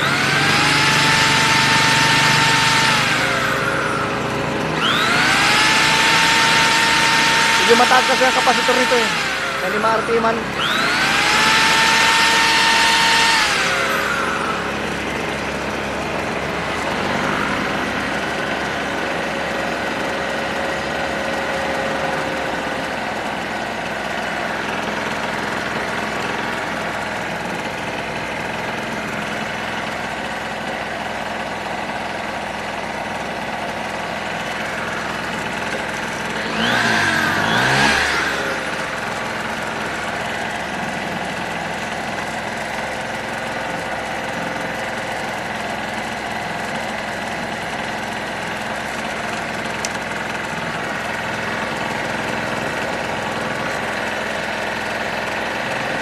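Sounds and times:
electric drill whine: 0:00.0 - 0:20.9, 0:34.3 - 0:45.8
generator engine running: 0:00.0 - 0:56.0.

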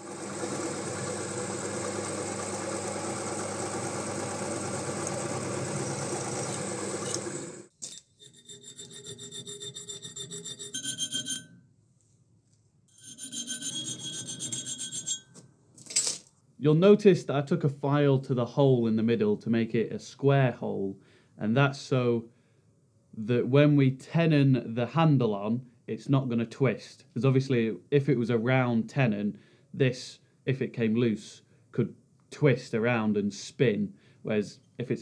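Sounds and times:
drill press whirring: 0:00.0 - 0:07.7
file ringing on metal: 0:08.2 - 0:11.6, 0:13.0 - 0:15.4.

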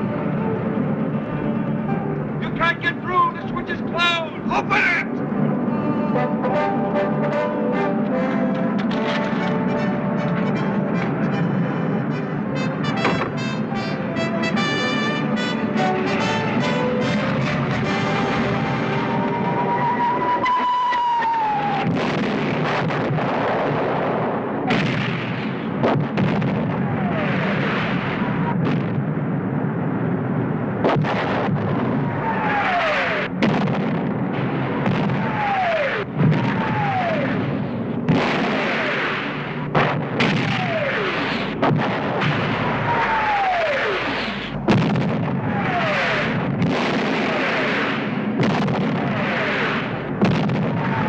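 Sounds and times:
continuous rumbling din: 0:00.0 - 0:51.0
falling bombs whistling: 0:15.8 - 0:29.7, 0:30.6 - 0:51.0
explosions: 0:17.6 - 0:51.0.

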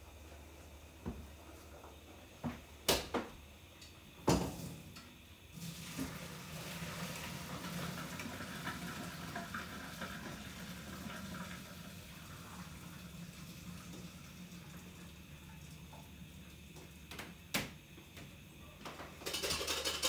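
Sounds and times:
water rushing into sink: 0:05.6 - 0:16.4.

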